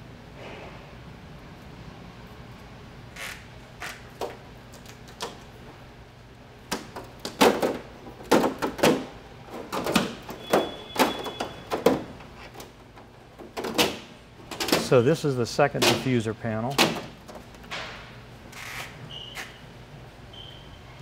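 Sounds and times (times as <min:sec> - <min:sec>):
plastic sheets knocking and flexing: 0:06.8 - 0:12.7.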